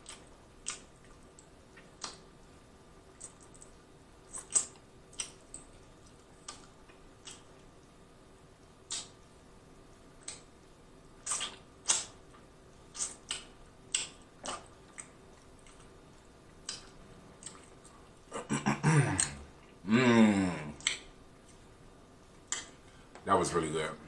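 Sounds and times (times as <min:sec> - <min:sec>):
wet lip smacks: 0:08.9 - 0:09.2, 0:11.2 - 0:12.2, 0:12.9 - 0:15.9
person humming mmm: 0:18.3 - 0:21.0.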